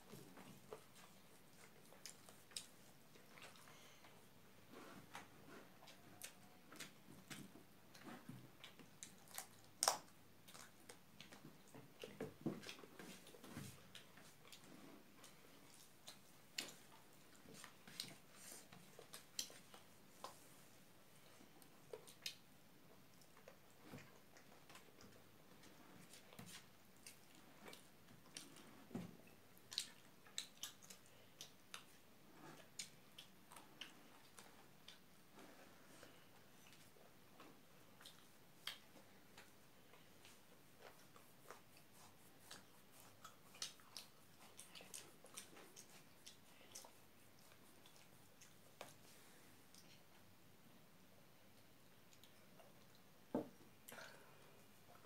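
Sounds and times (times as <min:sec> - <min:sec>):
person chewing: 0:05.1 - 0:20.4, 0:23.0 - 0:50.2
fingers eating wet clicks: 0:40.2 - 0:49.0.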